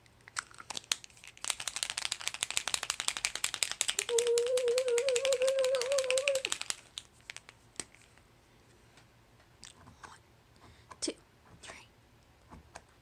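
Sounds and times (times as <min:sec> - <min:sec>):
paint marker ball rattling: 0:00.3 - 0:08.2
person humming: 0:04.0 - 0:06.6.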